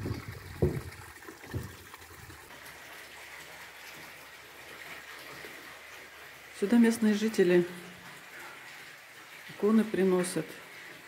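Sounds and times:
low thumps: 0.0 - 1.8
water pouring onto stones: 0.0 - 11.0.

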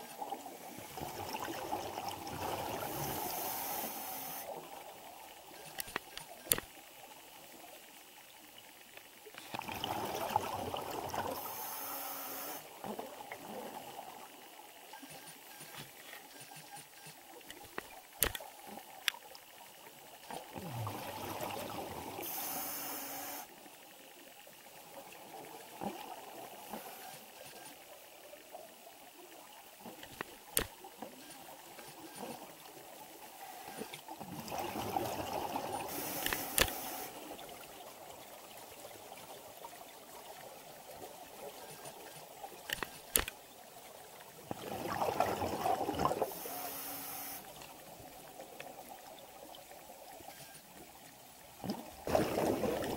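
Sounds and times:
sharp clicks: 17.5 - 18.5
underwater exhale bubbling: 20.6 - 23.4, 44.5 - 47.3, 51.6 - 52.9.

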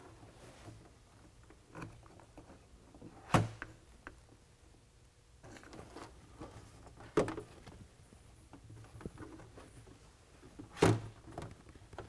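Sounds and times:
light handling noise: 5.4 - 12.0.

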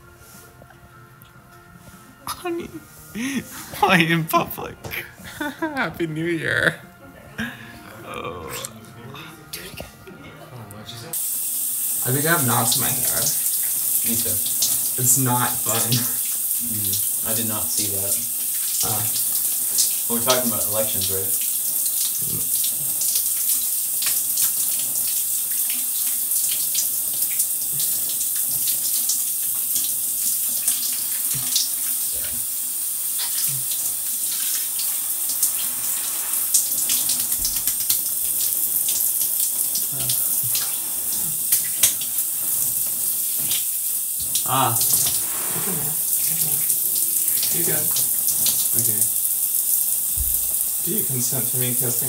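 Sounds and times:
shower spray running: 1.8 - 6.8, 11.1 - 52.0
water splashing on bathers: 12.0 - 29.9.

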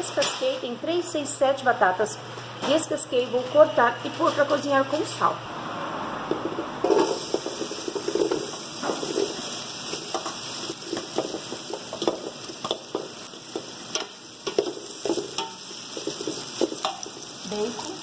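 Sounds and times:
bacon sizzling in oil: 6.8 - 18.0.

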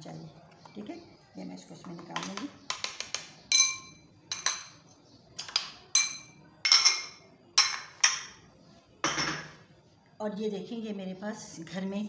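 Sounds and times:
metal spoon clinking on metal cup: 2.2 - 4.8, 5.5 - 8.4.

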